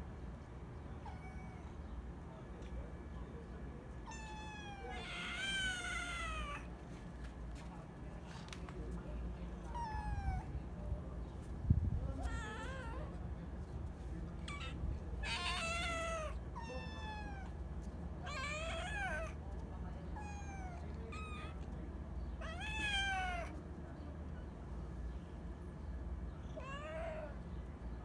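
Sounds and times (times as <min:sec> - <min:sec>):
kittens meowing: 0:01.0 - 0:01.9, 0:04.0 - 0:06.7, 0:12.2 - 0:13.2, 0:14.4 - 0:17.6, 0:18.2 - 0:19.4, 0:20.2 - 0:21.7, 0:22.4 - 0:23.5, 0:26.5 - 0:27.4.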